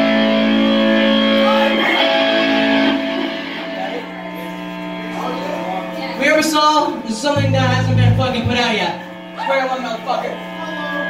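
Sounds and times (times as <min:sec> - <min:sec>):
guitar chords ringing: 0:00.0 - 0:06.2, 0:07.2 - 0:09.4.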